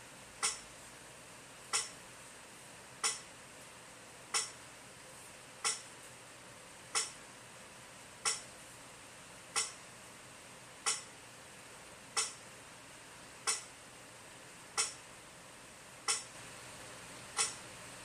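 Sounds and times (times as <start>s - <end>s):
metronome clicking: 0.4s - 0.6s, 1.7s - 2.0s, 3.0s - 3.3s, 4.3s - 4.6s, 5.6s - 5.8s, 6.9s - 7.2s, 8.2s - 8.5s, 9.6s - 9.8s, 10.8s - 11.1s, 12.2s - 12.4s, 13.4s - 13.7s, 14.8s - 15.0s, 16.1s - 16.3s, 17.4s - 17.6s.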